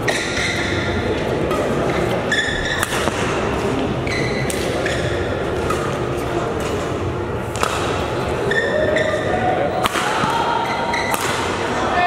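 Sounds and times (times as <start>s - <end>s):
murmur of spectators: 0.0s - 12.0s
shoes squeaking on court: 0.3s - 3.0s, 3.6s - 7.0s
racket striking shuttlecock: 1.4s - 9.1s, 9.8s - 11.6s.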